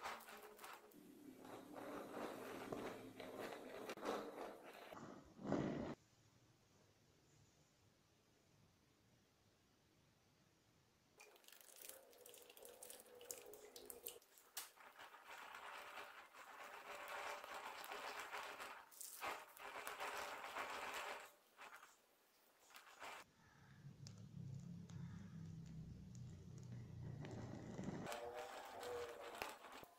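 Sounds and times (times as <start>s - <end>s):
whipped cream squelching from piping bag: 11.2s - 21.9s.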